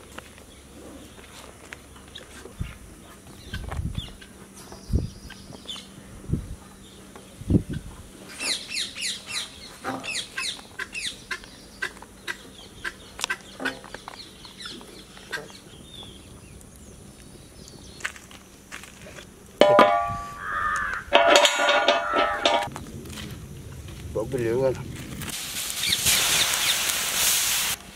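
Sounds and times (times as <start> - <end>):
bird chirping: 6.7 - 18.1.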